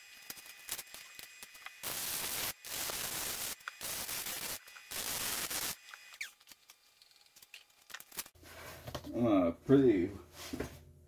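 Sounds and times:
welder arc hissing: 0.0s - 6.4s.

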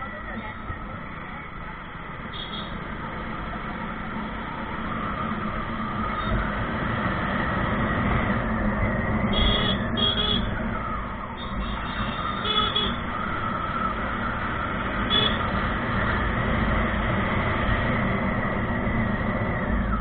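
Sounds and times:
road and wind noise: 0.0s - 20.0s.

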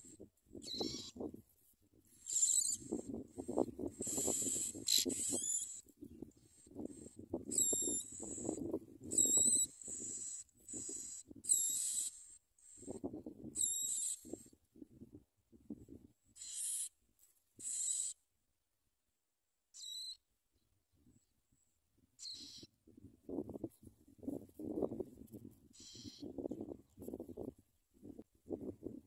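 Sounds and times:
nestlings begging calls: 0.6s - 1.1s, 2.2s - 3.0s, 4.0s - 5.8s, 6.9s - 12.2s, 16.4s - 16.9s, 17.6s - 18.2s, 22.2s - 22.7s, 25.8s - 26.2s.

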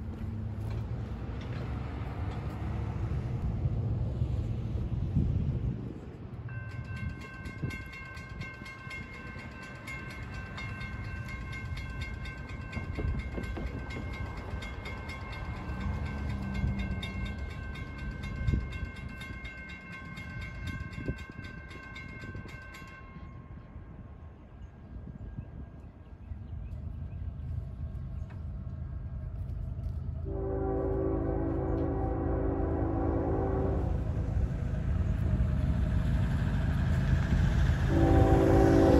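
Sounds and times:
low wind rumble: 0.0s - 38.9s
crossing warning bell ringing: 6.4s - 24.0s, 30.3s - 34.5s, 37.3s - 38.9s.

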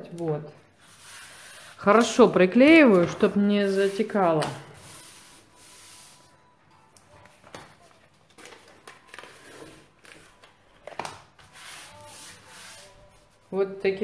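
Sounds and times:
paper rustling: 7.2s - 13.4s
fingers rubbing masking tape: 11.5s - 13.0s.

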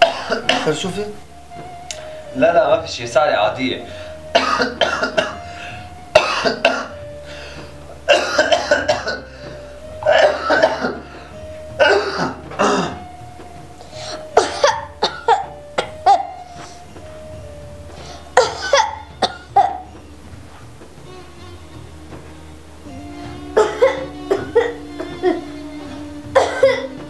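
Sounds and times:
man coughing: 0.0s - 0.8s
quiet background music: 0.0s - 27.0s.

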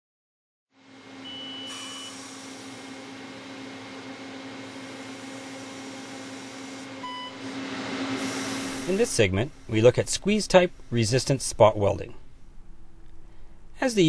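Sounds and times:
mechanical hum: 0.8s - 14.0s
short high beep: 1.3s - 2.2s, 7.0s - 7.4s.

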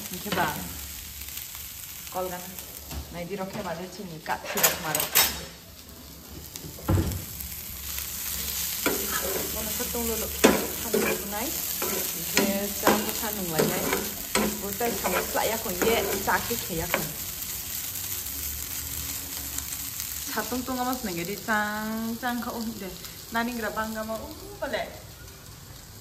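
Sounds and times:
food sizzling: 0.0s - 26.0s
metal spoon scraping frying pan: 4.3s - 5.4s, 8.6s - 17.2s.

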